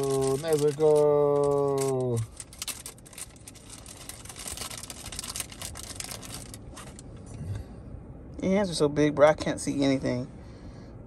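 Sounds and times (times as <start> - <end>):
plastic bag crinkling: 0.0 - 7.0.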